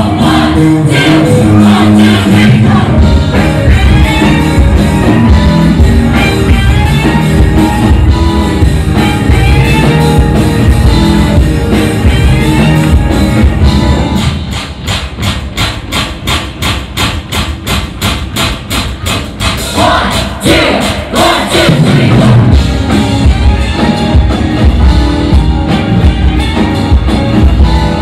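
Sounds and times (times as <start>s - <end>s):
pop-rock song with group singing: 0.0s - 7.1s, 19.7s - 23.0s
sharp evenly spaced beats: 14.2s - 22.2s.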